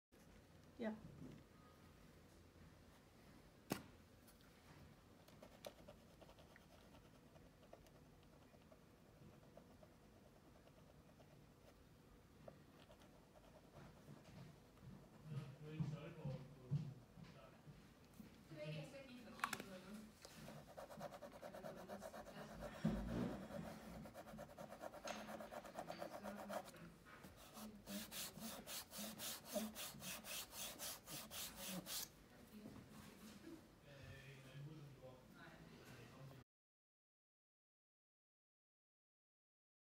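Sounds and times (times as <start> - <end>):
marker tip scratching on wood: 20.5 - 26.7, 27.4 - 32.1
rubbing strokes on wood: 27.3 - 32.1
repair stick scraping on wood: 27.4 - 32.1.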